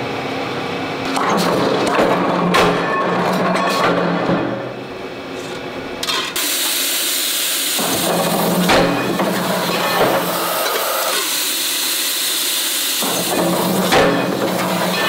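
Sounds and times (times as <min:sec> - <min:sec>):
press machine hum: 0:00.0 - 0:15.0
loud steady hiss: 0:06.4 - 0:13.9.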